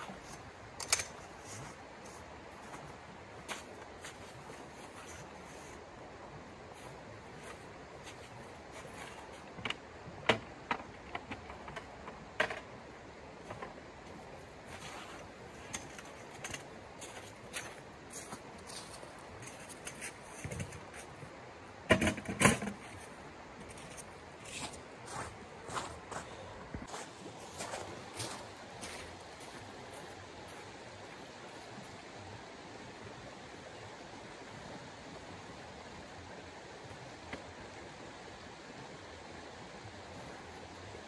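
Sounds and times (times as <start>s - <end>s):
camping gear clicks and rustles: 0.0s - 5.9s, 6.7s - 12.7s, 13.4s - 21.3s
shallow creek flowing over stones: 0.0s - 21.9s, 22.7s - 41.0s.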